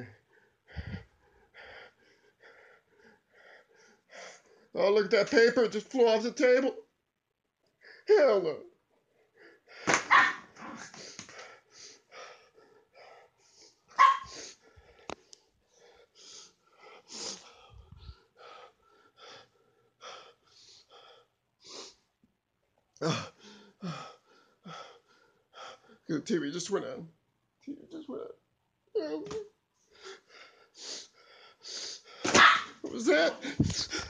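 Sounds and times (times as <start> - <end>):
person breathing heavily: 0.0 - 4.8, 10.6 - 22.0, 23.0 - 26.1, 29.9 - 32.3, 33.1 - 34.0
person gasping: 0.7 - 1.8, 33.2 - 34.0.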